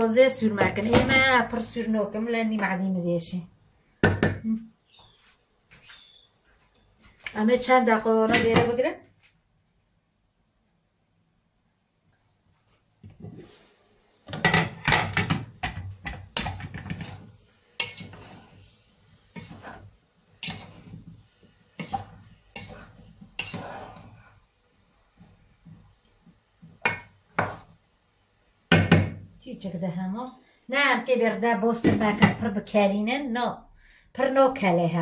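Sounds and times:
wooden spatula scraping pot: 0:14.3 - 0:24.5, 0:26.8 - 0:27.7.

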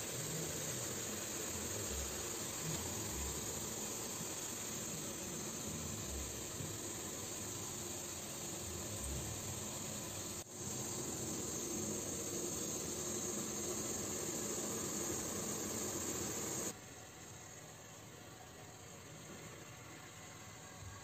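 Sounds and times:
steamer pot hissing: 0:00.0 - 0:16.8.

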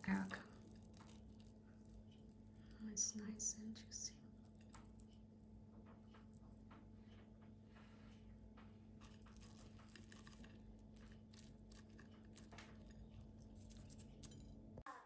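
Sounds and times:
fried chicken crust crackling: 0:00.0 - 0:03.0, 0:08.9 - 0:14.5.

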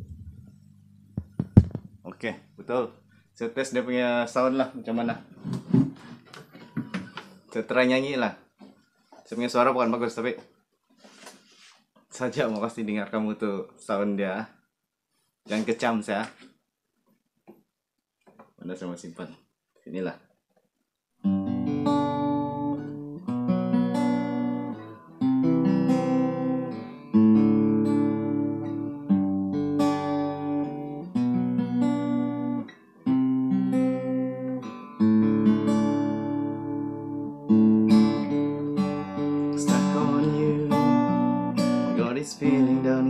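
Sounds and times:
acoustic guitar chords: 0:21.2 - 0:43.0.

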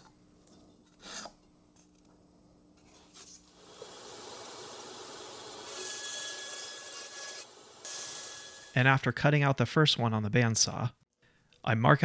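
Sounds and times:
bandsaw cutting wood: 0:03.6 - 0:08.8.

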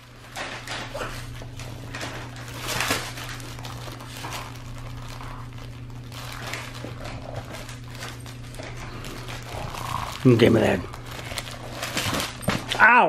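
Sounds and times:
plush toys rustling and crinkling: 0:00.0 - 0:13.0
steady low hum: 0:00.0 - 0:13.0.

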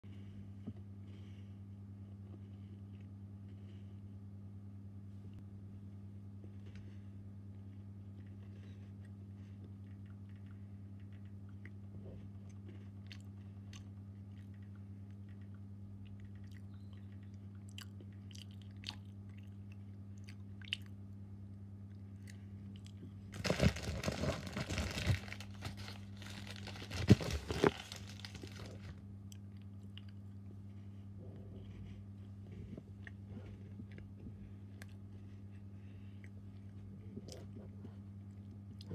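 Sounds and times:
low electrical hum: 0:00.0 - 0:38.9
crunching crackling noise: 0:21.8 - 0:30.5.

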